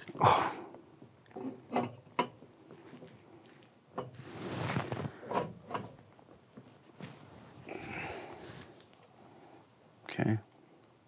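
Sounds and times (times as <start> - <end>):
soft handling noise: 2.6 - 9.2.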